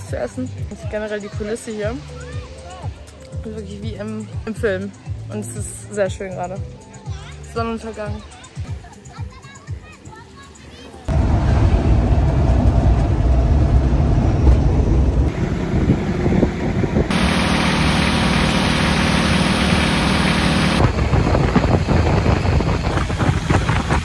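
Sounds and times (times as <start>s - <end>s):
boat engine running: 11.1s - 24.0s
vehicle engine rumble: 11.1s - 24.0s
wind buffeting microphone: 11.1s - 24.0s.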